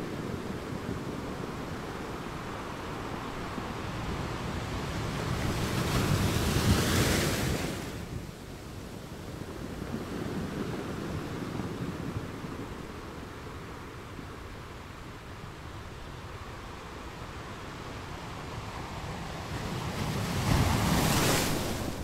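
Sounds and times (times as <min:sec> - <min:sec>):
waves breaking: 0:17.9 - 0:22.0.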